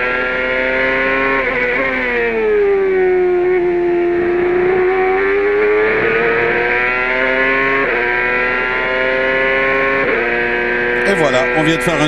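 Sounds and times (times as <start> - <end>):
engine upshifts: 0.0 - 12.0
race car engine accelerating: 0.0 - 12.0.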